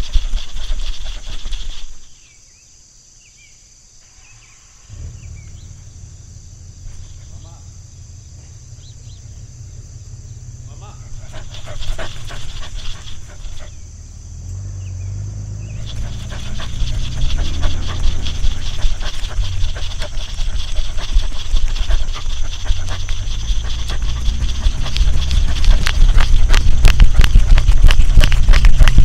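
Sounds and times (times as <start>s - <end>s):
dog panting: 0.0s - 2.0s, 10.8s - 13.8s, 15.7s - 29.0s
high insect drone: 0.0s - 29.0s
low rumble: 4.9s - 29.0s.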